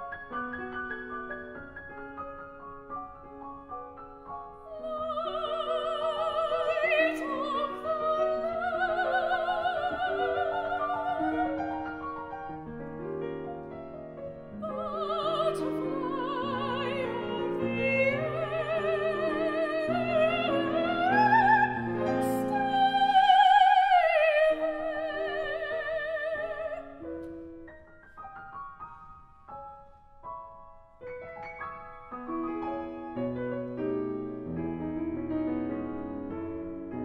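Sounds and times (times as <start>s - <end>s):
grand piano accompaniment: 0.0s - 37.0s
soprano singing with vibrato: 4.6s - 12.0s, 14.5s - 27.1s.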